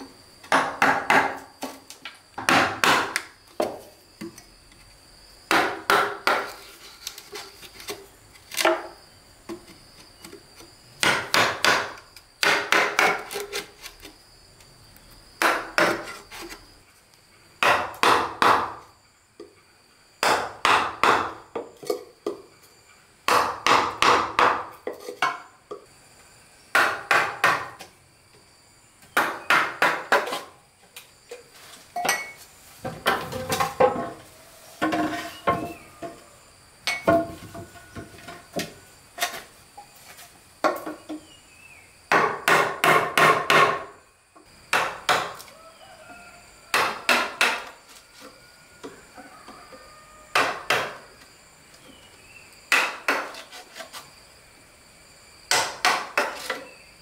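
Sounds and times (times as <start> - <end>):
hand tool striking wood: 0.4 - 1.8, 2.4 - 4.4, 5.5 - 6.7, 11.0 - 13.6, 15.4 - 16.5, 17.6 - 18.8, 20.2 - 22.4, 23.3 - 25.5, 26.7 - 27.9, 29.2 - 30.5, 42.1 - 43.9, 44.7 - 45.5, 46.7 - 47.8, 50.3 - 51.0, 52.7 - 54.0, 55.5 - 56.7.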